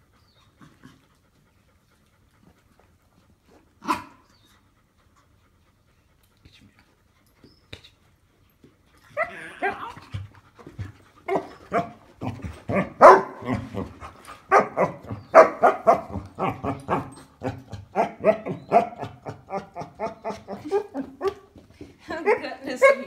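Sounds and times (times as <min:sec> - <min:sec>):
dog barking and whining: 0:09.0 - 0:10.3, 0:11.3 - 0:21.6.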